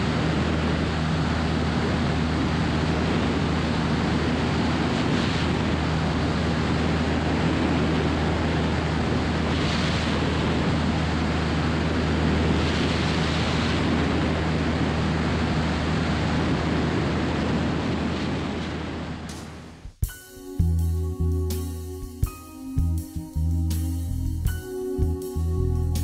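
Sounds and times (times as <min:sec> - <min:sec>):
light aircraft engine drone: 0:00.0 - 0:19.6, 0:20.5 - 0:26.0
wind rush on microphone: 0:00.0 - 0:19.9.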